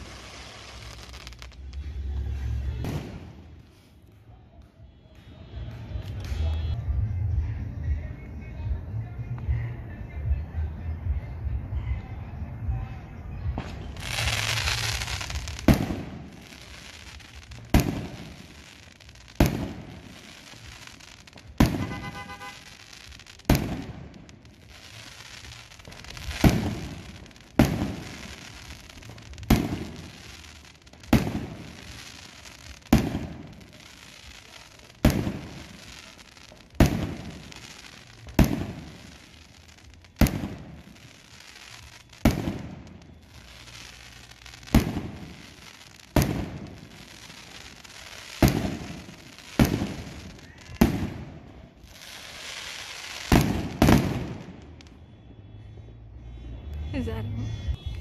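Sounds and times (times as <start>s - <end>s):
fireworks bangs with echo: 0.0s - 3.8s, 13.4s - 55.2s.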